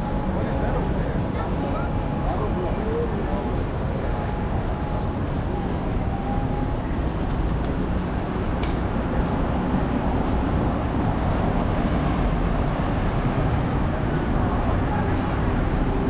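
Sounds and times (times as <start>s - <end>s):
city street traffic: 0.0s - 16.0s
brief click: 8.6s - 8.8s.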